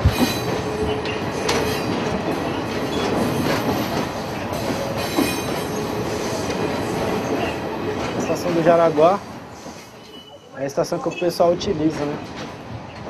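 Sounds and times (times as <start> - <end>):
wheels clacking over rail joints: 0.0 - 9.9
train rumbling past: 0.0 - 13.0.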